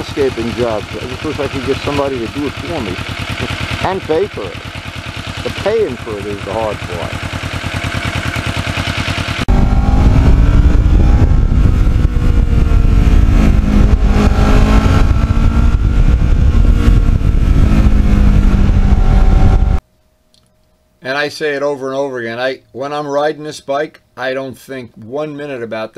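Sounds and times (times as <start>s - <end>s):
motorcycle engine idling: 0.0s - 19.8s
motorcycle riding on road: 0.0s - 19.8s
wind rush: 9.4s - 19.8s.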